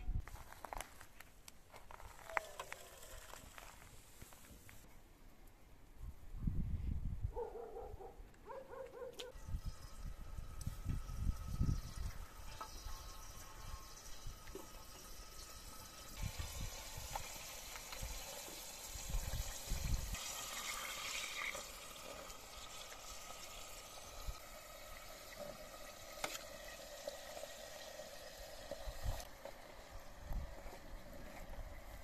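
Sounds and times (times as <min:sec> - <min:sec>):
liquid bubbling in a pot: 0:09.4 - 0:32.0.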